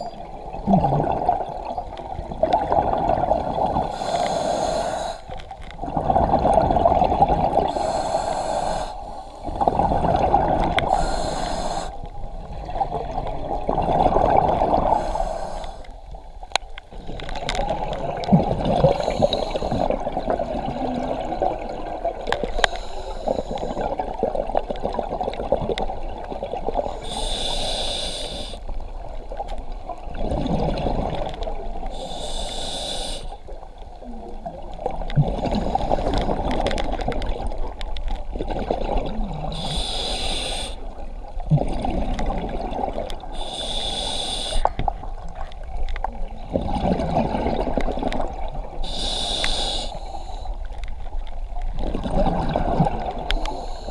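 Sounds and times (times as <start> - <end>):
bubbling exhalations: 0.6 - 1.6, 41.5 - 43.4
hissing regulator breaths: 3.9 - 5.4, 7.7 - 9.6, 10.9 - 12.1, 14.9 - 16.0, 18.8 - 19.9, 22.4 - 23.9, 26.9 - 28.6, 31.9 - 33.4, 39.5 - 40.9, 43.3 - 44.8, 48.8 - 50.6, 53.3 - 53.9.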